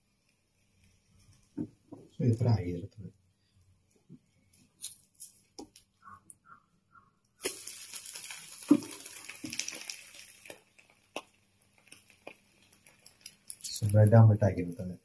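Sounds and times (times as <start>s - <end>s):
omelette sizzling: 0.0s - 2.8s, 7.3s - 15.0s.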